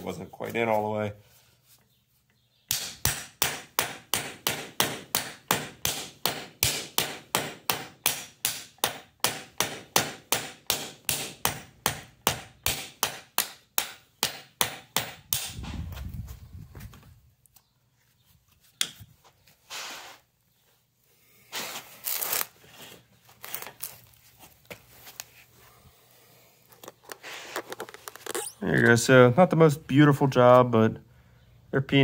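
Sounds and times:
hammer hitting steel rivet: 2.7s - 15.6s.

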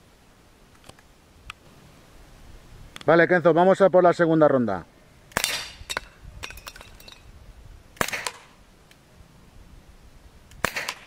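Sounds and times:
air pistol shots: 5.3s - 5.8s, 8.0s - 8.6s, 10.6s - 11.0s.

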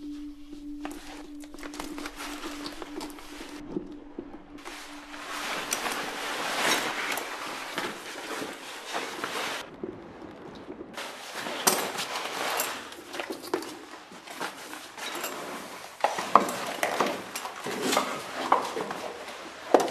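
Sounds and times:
packaging rustling: 0.8s - 9.7s.

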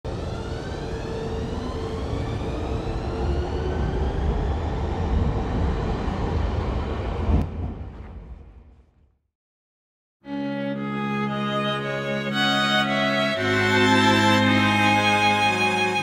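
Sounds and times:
low rumble: 0.1s - 9.2s.

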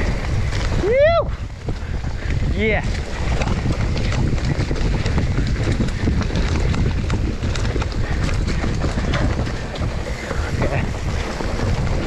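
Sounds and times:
bike clicks and rattles: 0.0s - 12.0s
tyres rumbling over dirt: 0.0s - 12.0s
wind buffeting microphone: 0.0s - 12.0s.

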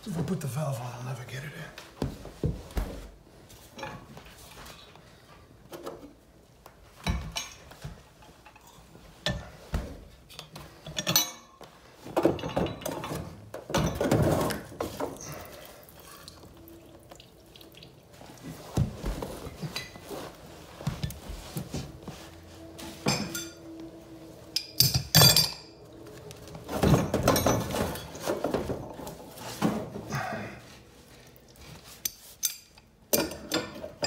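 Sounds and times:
metal clanks and knocks: 10.8s - 15.2s, 22.8s - 23.8s, 26.5s - 30.1s.

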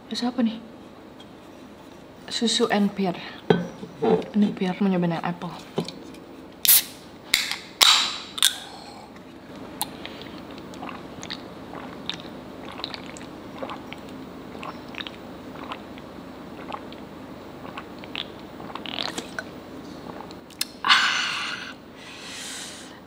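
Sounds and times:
bottle cap crackling snaps: 6.6s - 8.6s.

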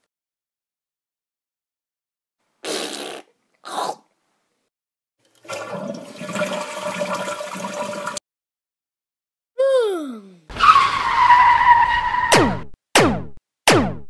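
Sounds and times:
toilet flushing: 5.2s - 8.2s.

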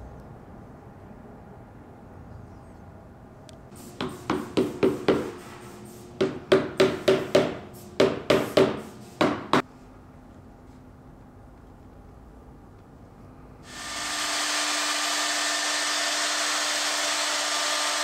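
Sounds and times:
hammer knocking wooden joint: 4.0s - 5.3s, 6.2s - 9.6s.

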